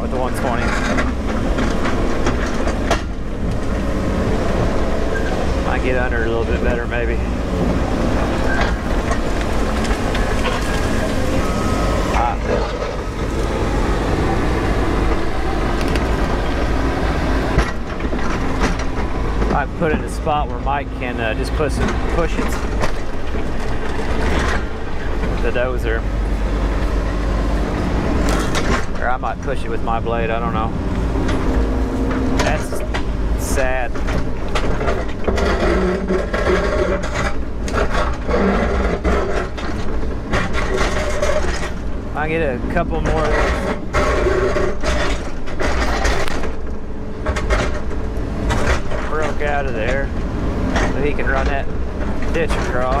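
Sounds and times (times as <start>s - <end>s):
excavator diesel engine under load: 0.0s - 53.0s
hydraulics working: 0.0s - 53.0s
steel bucket scraping rock: 0.1s - 2.9s, 4.8s - 13.7s, 28.2s - 46.6s.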